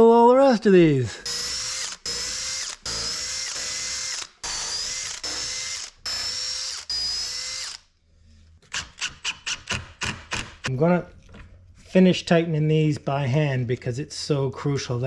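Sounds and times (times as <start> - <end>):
cordless drill motor whine: 1.2 - 7.8.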